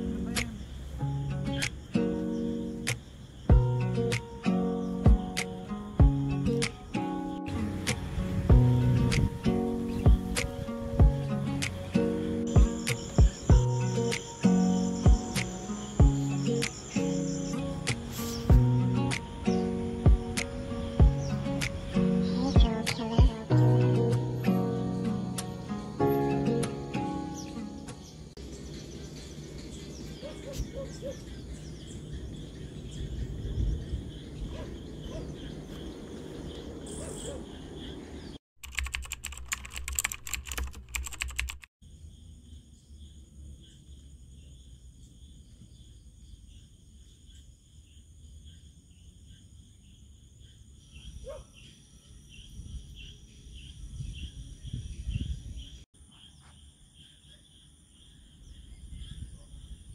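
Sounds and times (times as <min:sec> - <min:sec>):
high insect buzz: 0:00.0 - 0:27.8
birds chirping: 0:00.0 - 0:38.4, 0:43.7 - 0:59.9
wind rumbling on microphone: 0:06.0 - 0:13.8, 0:28.4 - 0:38.4, 0:52.3 - 0:55.8, 0:58.4 - 0:59.9
rapid clicking: 0:38.6 - 0:41.7.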